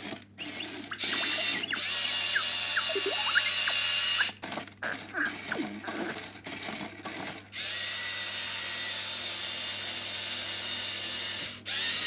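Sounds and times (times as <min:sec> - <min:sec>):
electronic chirps and whistles: 0:00.4 - 0:04.3
toy robot motor whirring: 0:00.4 - 0:06.9, 0:07.5 - 0:12.0.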